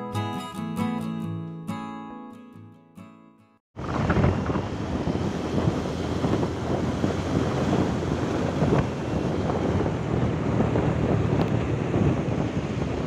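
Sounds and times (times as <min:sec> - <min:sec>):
motorbike road noise: 0:03.8 - 0:13.0
wind buffeting microphone: 0:03.8 - 0:13.0.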